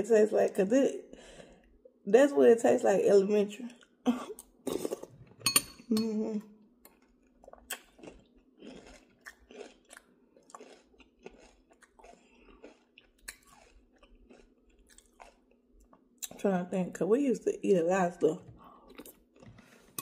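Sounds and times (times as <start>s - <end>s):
chewing with wet mouth smacks: 6.9s - 16.4s.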